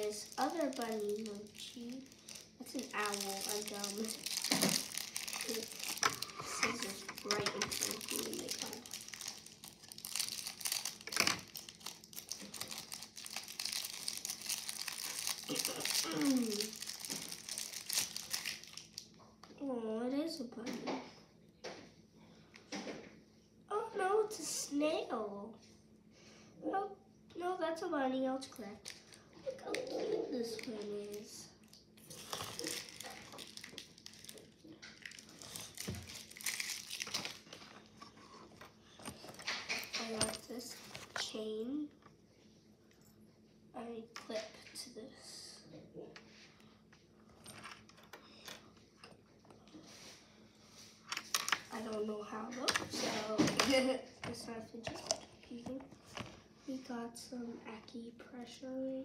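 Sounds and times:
plastic wrapper crinkling: 0:00.0 - 0:19.2, 0:28.7 - 0:41.2
toys and packaging rustling: 0:00.0 - 0:19.2, 0:28.5 - 0:41.4, 0:47.2 - 0:56.8.

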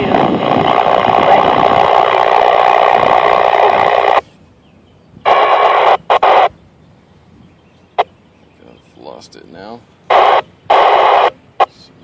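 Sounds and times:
radio static: 0:00.0 - 0:04.2, 0:05.2 - 0:06.5, 0:10.1 - 0:12.0.

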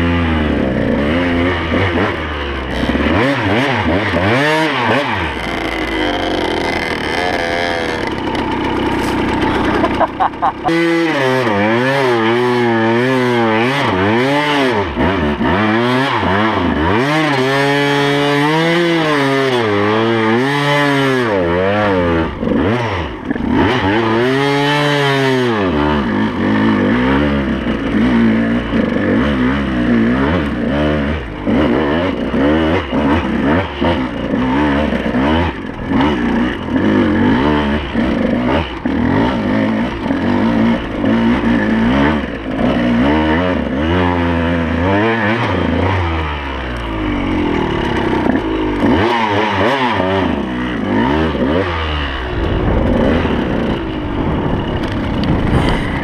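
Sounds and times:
two-stroke motorcycle engine revving: 0:00.0 - 0:56.0.

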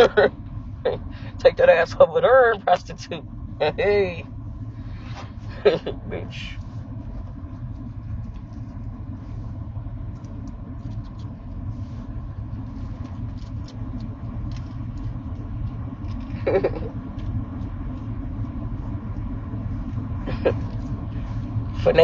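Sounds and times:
car cabin low rumble: 0:00.0 - 0:22.0.

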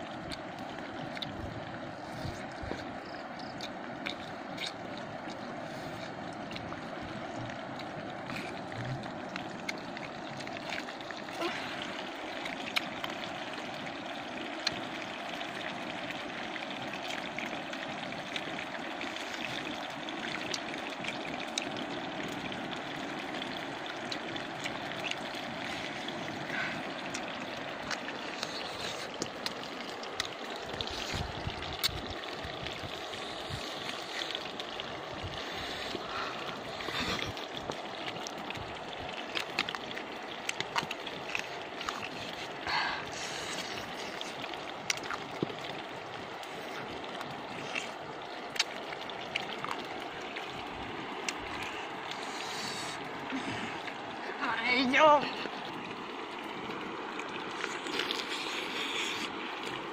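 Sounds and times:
person chewing: 0:47.6 - 0:49.8, 0:57.5 - 0:59.4.

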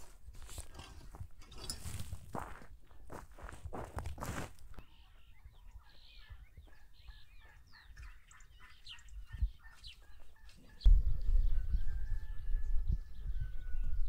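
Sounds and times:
small birds chirping: 0:04.7 - 0:14.0
chickens clucking: 0:05.0 - 0:11.5.

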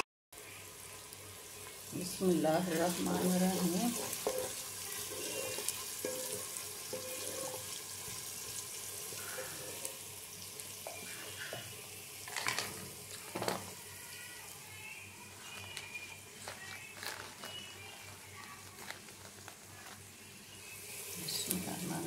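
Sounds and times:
vegetables sizzling in oil: 0:00.4 - 0:22.0.

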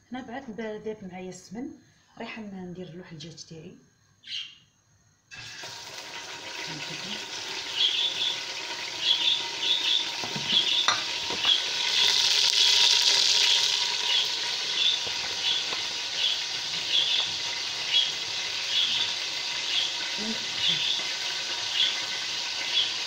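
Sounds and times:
chicken sizzling in a pot: 0:05.3 - 0:23.0
spoon knocking against pot: 0:10.2 - 0:11.6
spoon scraping: 0:10.5 - 0:19.9.

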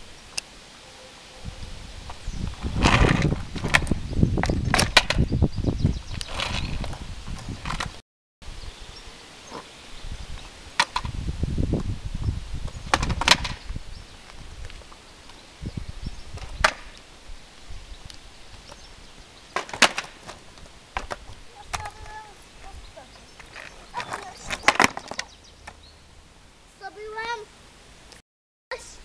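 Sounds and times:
skateboard wheels rolling: 0:02.0 - 0:05.4, 0:06.2 - 0:08.0, 0:12.6 - 0:15.5, 0:18.0 - 0:25.8
skateboard clacking on concrete: 0:19.6 - 0:20.4, 0:21.0 - 0:22.2, 0:23.4 - 0:25.3.

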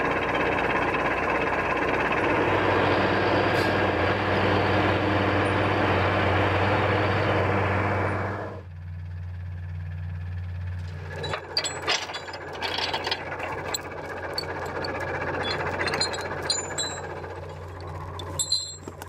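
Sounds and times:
machine engine humming: 0:09.5 - 0:19.0
metal chains rattling: 0:11.1 - 0:19.0.

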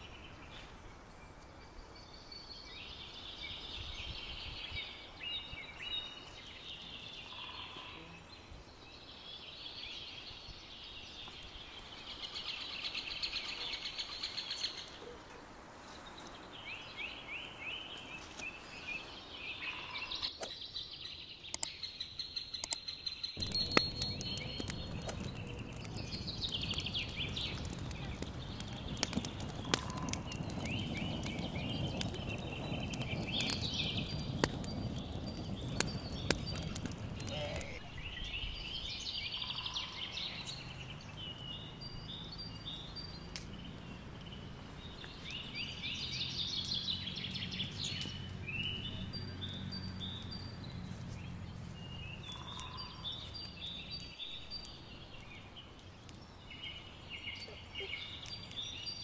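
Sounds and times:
outdoor background: 0:00.0 - 0:59.0
songbird singing: 0:00.0 - 0:59.0
wood fire crackling: 0:23.4 - 0:59.0.

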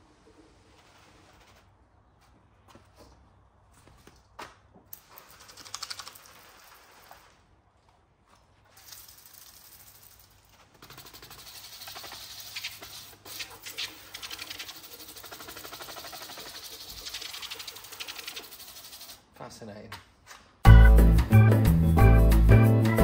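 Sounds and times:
pressure washer spraying: 0:05.0 - 0:07.4, 0:08.8 - 0:19.3.

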